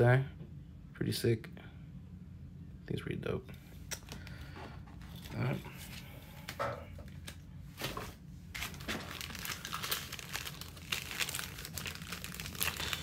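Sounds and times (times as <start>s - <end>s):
foil wrappers crinkling: 5.0s - 13.0s.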